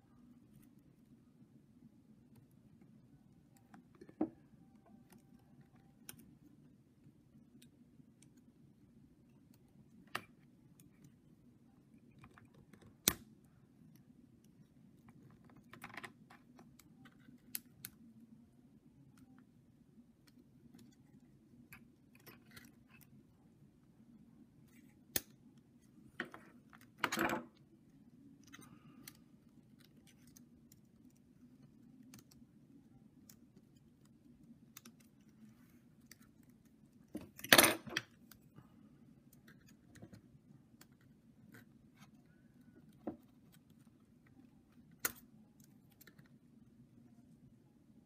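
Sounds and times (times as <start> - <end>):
faint low hum: 0.0 - 48.0.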